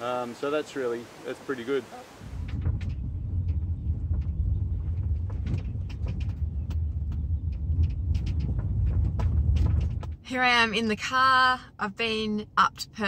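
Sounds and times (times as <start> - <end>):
car engine and tyres rumbling: 2.3 - 13.0
knocks and rattles over bumps: 2.4 - 11.2.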